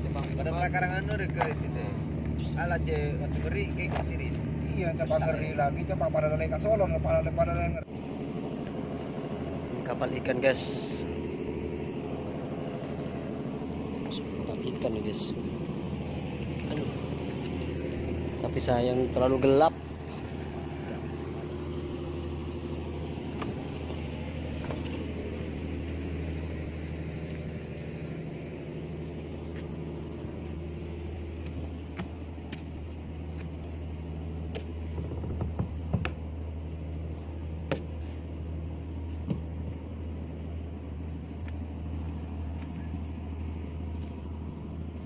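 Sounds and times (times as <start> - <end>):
engine idling: 0.0 - 45.0
sharp clicks and knocks: 34.5 - 36.2.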